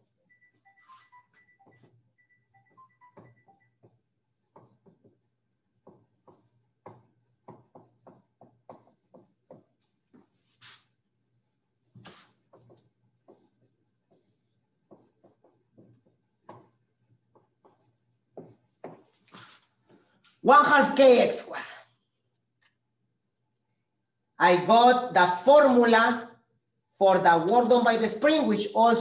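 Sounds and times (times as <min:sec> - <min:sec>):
marker squeaking on whiteboard: 0:00.0 - 0:29.0.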